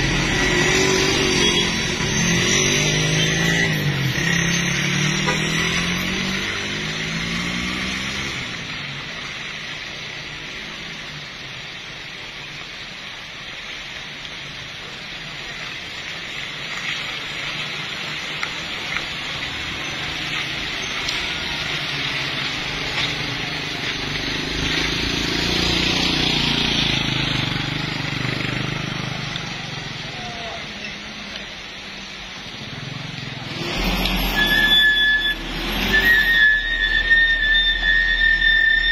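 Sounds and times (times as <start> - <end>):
engine revving: 0.0 - 8.8, 19.8 - 29.9, 32.6 - 38.4
vehicle engines passing on wet road: 0.0 - 38.9
steady hiss: 8.0 - 34.6.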